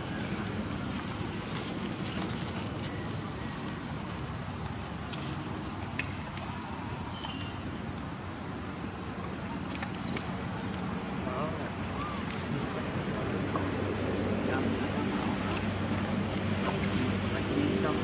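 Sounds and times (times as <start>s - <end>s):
insect chorus drone: 0.0s - 18.0s
high wavering calls: 9.8s - 10.9s.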